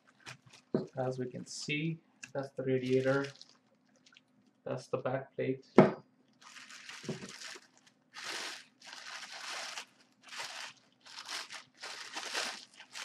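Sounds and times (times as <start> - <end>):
plastic bag crinkling: 0.0 - 1.0, 2.8 - 4.2, 6.4 - 13.0.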